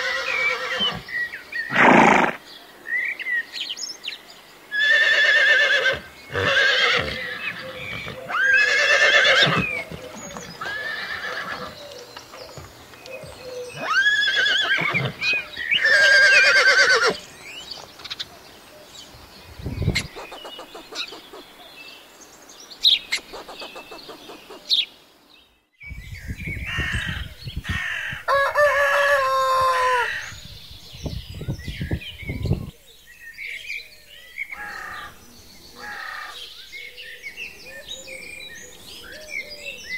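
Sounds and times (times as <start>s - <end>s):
horses neighing: 0.0s - 1.0s, 1.7s - 2.4s, 4.8s - 11.8s, 13.7s - 17.2s
chickens clucking: 19.9s - 21.5s, 23.1s - 24.8s
rooster crowing: 28.1s - 30.2s.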